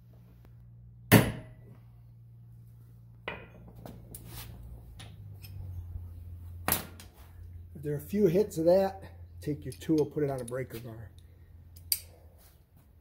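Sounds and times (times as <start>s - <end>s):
metallic clinks of tool handling: 9.6s - 12.2s.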